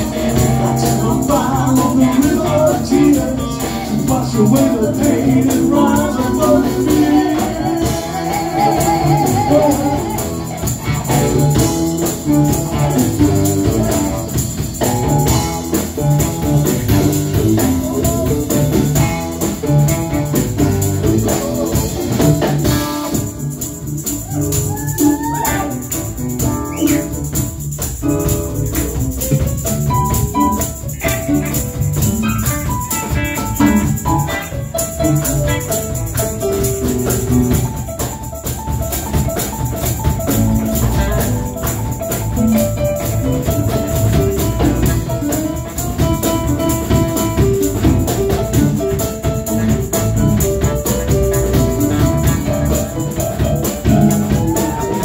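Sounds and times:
person singing: 0.0s - 14.6s, 16.9s - 23.3s, 24.2s - 27.3s, 49.4s - 55.0s
live blues band playing: 0.0s - 55.0s.

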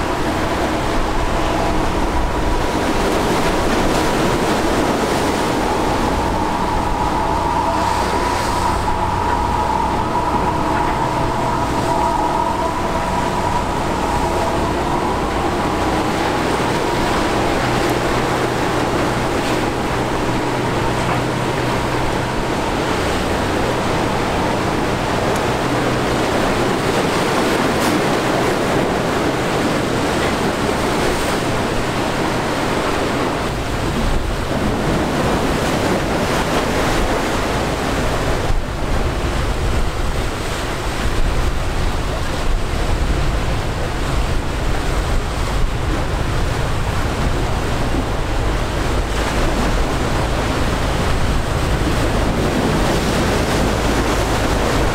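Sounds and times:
high whine: 0.0s - 41.9s
waves and churning water: 0.0s - 54.9s.

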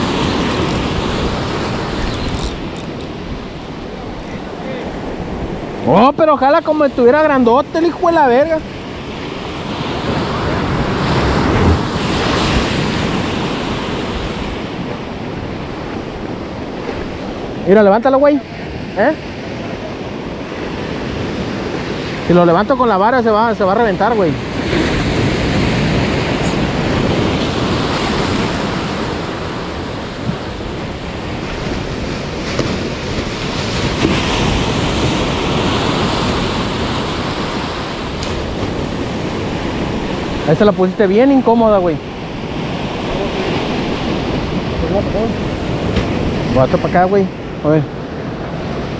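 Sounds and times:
ocean waves breaking: 0.0s - 48.9s
wind buffeting microphone: 0.0s - 48.9s.

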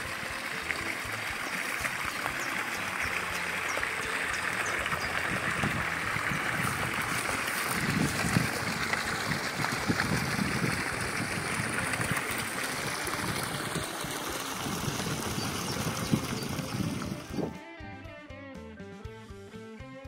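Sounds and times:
water pouring into a pond: 0.0s - 17.5s
guitar music: 17.0s - 20.0s.

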